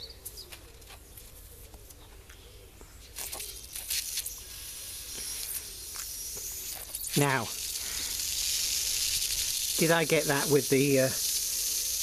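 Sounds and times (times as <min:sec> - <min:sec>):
air hissing from a puncture: 0:03.2 - 0:12.0.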